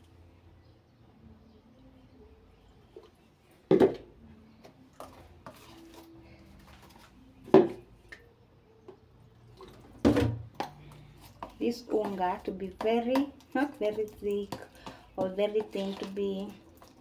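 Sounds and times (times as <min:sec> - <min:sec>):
spoon mixing paste in bowl: 0:04.9 - 0:07.1, 0:10.5 - 0:17.0.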